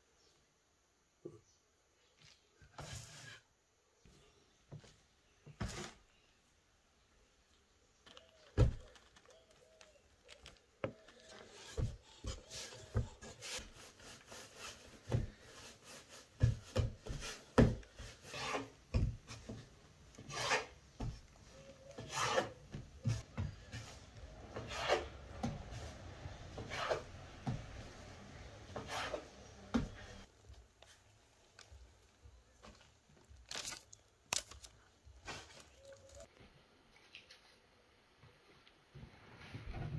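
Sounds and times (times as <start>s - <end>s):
knife blade scraping a board: 18.2s - 18.8s, 20.2s - 20.8s, 22.0s - 22.6s, 24.6s - 25.1s, 26.6s - 27.1s, 28.8s - 29.3s.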